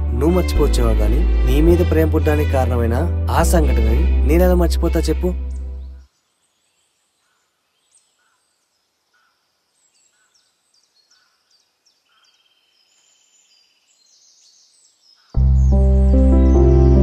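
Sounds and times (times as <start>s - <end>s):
bird chirping: 5.0s - 17.0s.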